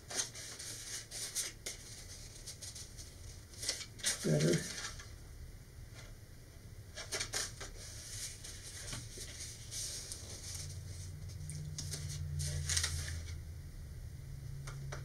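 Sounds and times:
stiff paper rustling and crinkling: 0:00.0 - 0:05.1, 0:07.0 - 0:13.4
low steady hum: 0:00.0 - 0:15.0.

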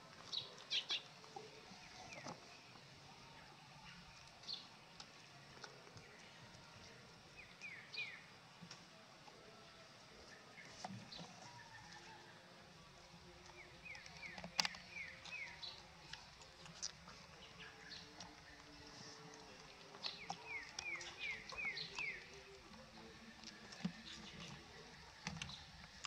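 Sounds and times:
puppies suckling: 0:13.1 - 0:26.0.

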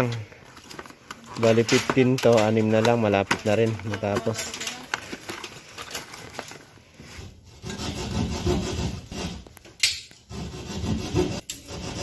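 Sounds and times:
hand saw cutting plasterboard: 0:07.5 - 0:09.5, 0:10.3 - 0:12.0.

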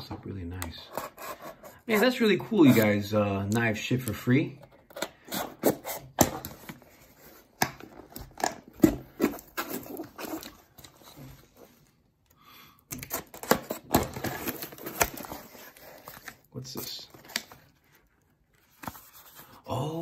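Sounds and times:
cardboard box rustling: 0:05.5 - 0:11.9, 0:13.1 - 0:19.5.

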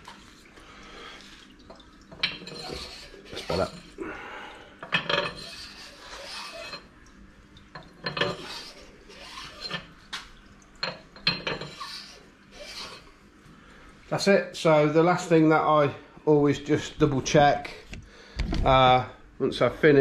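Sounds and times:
brush rasping in engine bores: 0:05.4 - 0:06.8, 0:08.3 - 0:09.8, 0:11.7 - 0:13.1.

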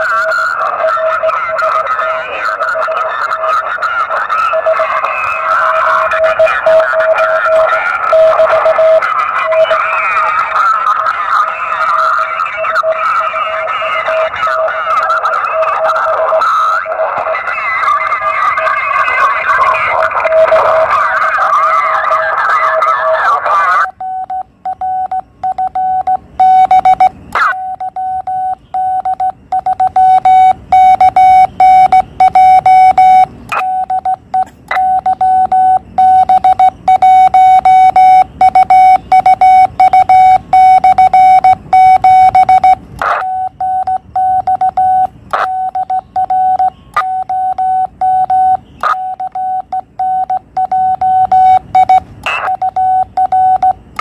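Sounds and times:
morse code beeping: 0:00.0 - 0:11.1, 0:23.8 - 0:54.0.

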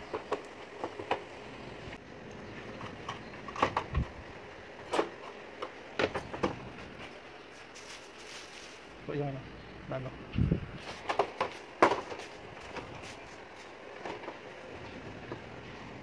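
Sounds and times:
clicks and knocks of plastic parts: 0:04.8 - 0:06.7, 0:10.9 - 0:13.0.

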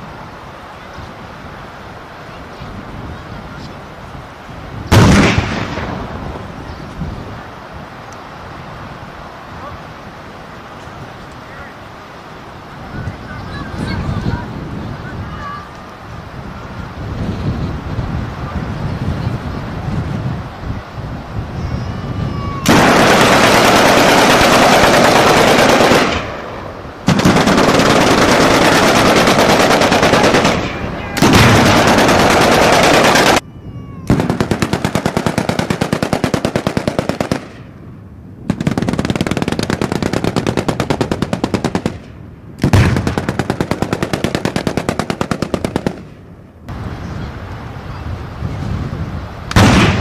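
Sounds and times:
machine-gun fire: 0:04.9 - 0:06.2, 0:22.7 - 0:33.4, 0:34.1 - 0:37.7, 0:38.5 - 0:46.2, 0:49.5 - 0:50.0.

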